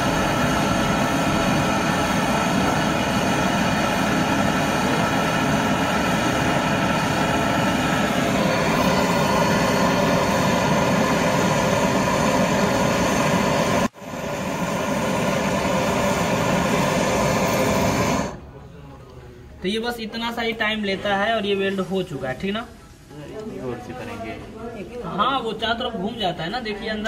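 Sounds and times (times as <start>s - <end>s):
gas torch flame hissing: 0.0s - 18.4s.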